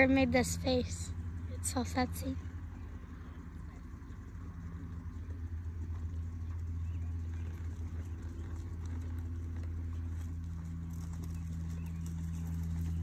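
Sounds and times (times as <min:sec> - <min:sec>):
horse hooves in soft sand: 0:00.0 - 0:13.0
steady low hum: 0:00.0 - 0:13.0.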